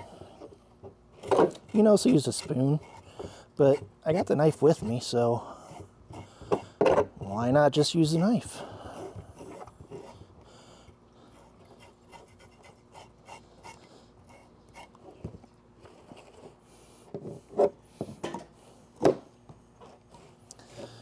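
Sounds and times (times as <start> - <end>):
knife scraping fish scales: 1.6 - 3.8.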